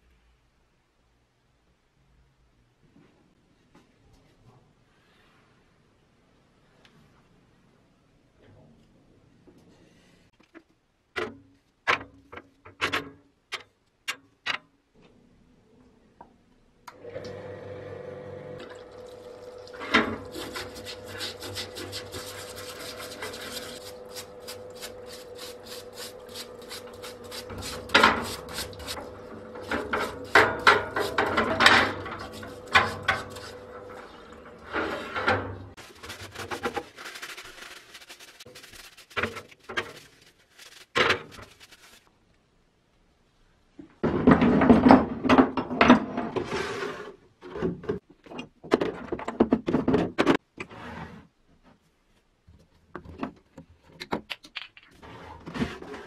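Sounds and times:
pump humming: 16.9s - 35.4s
brush scrubbing metal parts: 19.8s - 42.1s
solvent running through brush: 35.8s - 42.1s.

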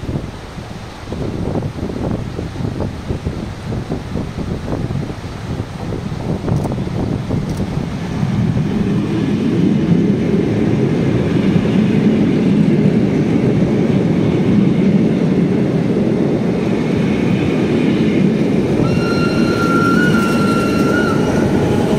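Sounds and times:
train wheels rumbling on rails: 0.0s - 21.9s
high-pitched brake squeal: 18.8s - 21.9s.

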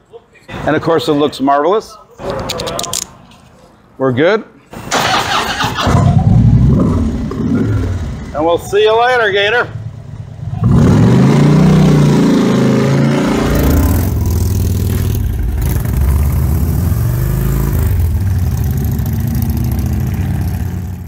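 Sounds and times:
motorcycle engine revving: 5.0s - 8.4s, 9.7s - 21.0s.

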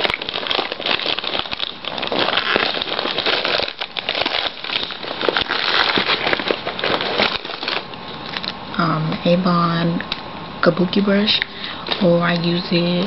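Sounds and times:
crackling and rustling handling noise: 0.0s - 9.2s, 11.3s - 13.0s.

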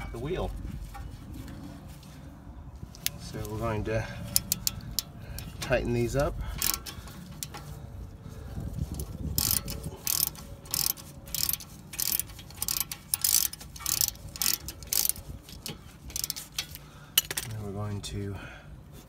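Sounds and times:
hand ratchet clicking: 4.3s - 7.8s, 8.9s - 17.5s.

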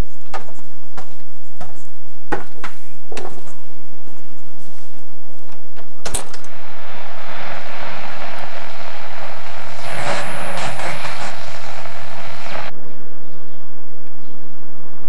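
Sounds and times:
loud rumbling with low hum: 6.4s - 12.8s.

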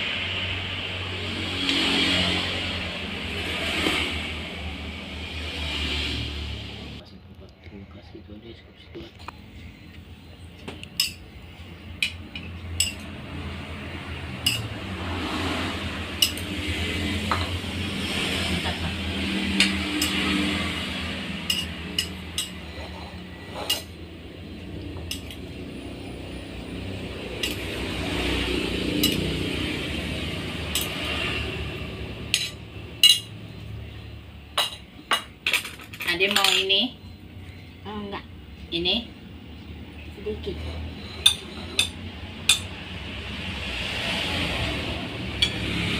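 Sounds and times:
serving spoon clinking on plates: 10.8s - 11.2s, 12.0s - 13.1s, 14.4s - 14.7s, 21.4s - 24.0s, 25.0s - 25.4s, 41.2s - 42.7s.

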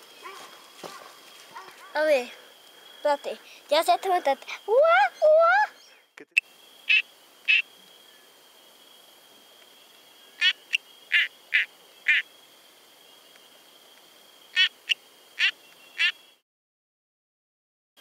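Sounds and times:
tree frog creaking calls: 6.2s - 8.3s, 9.6s - 16.4s.

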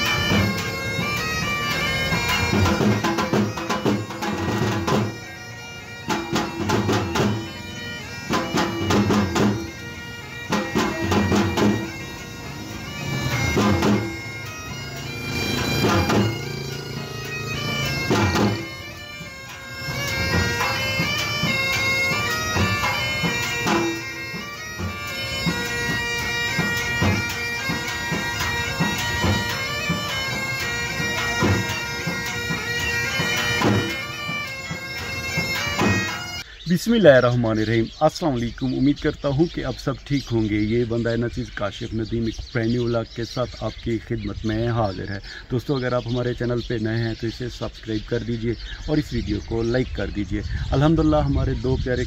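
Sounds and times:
heavy drum beats: 0.0s - 36.4s
reedy wind instrument melody: 0.0s - 36.7s.

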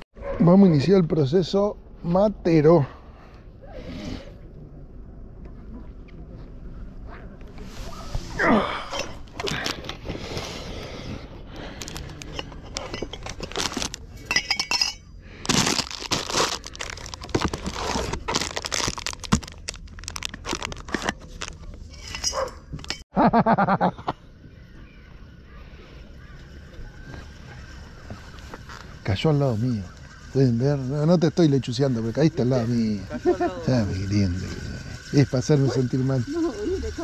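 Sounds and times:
crisp packet crackling: 11.8s - 14.1s, 15.3s - 21.9s
metal cup clinking: 14.2s - 15.1s.

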